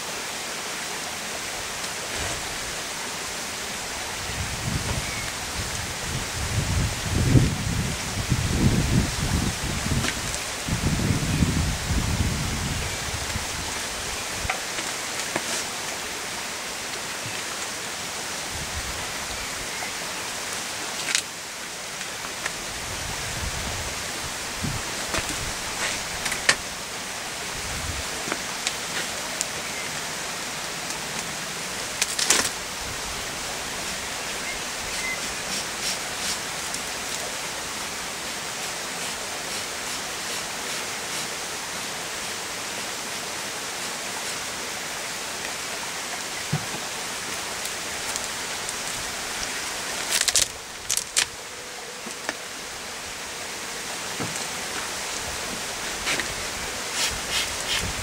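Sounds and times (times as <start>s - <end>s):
honeybees humming: 46.2s - 58.0s.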